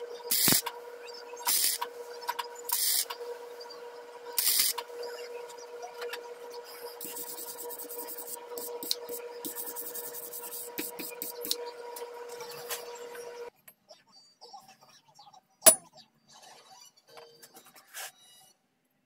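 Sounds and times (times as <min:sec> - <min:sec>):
steady machine hum: 0:00.0 - 0:13.5.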